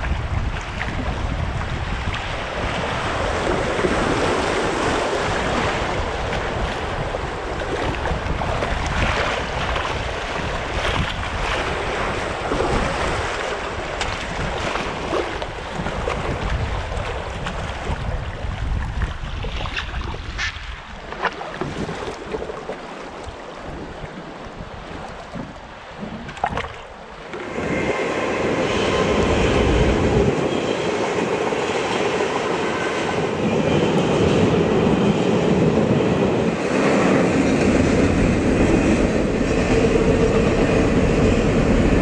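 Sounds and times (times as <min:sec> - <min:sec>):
rushing whitewater: 0:00.0 - 0:18.5
wind buffeting microphone: 0:00.0 - 0:42.0.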